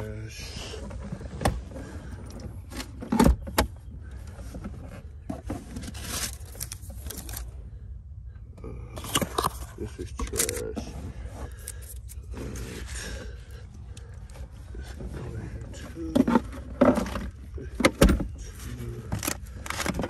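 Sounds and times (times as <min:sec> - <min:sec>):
items clattering: 0:09.0 - 0:20.0.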